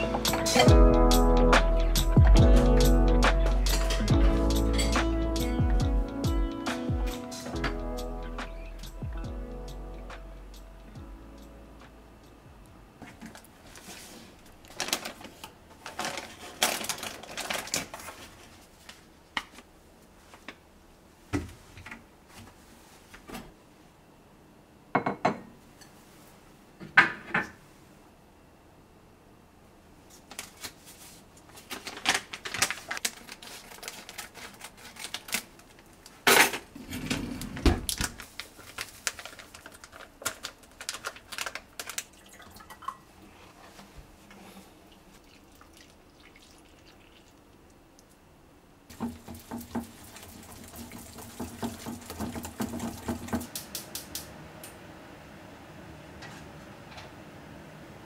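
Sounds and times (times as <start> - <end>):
paper bag rustling: 13.1 - 19.1, 30.2 - 42.3.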